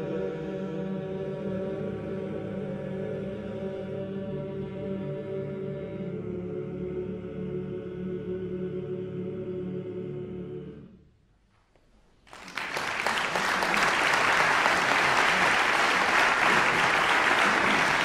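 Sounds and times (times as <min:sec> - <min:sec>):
male choir holding chord: 0:00.0 - 0:10.9, 0:13.6 - 0:18.0
audience applause: 0:12.3 - 0:18.0.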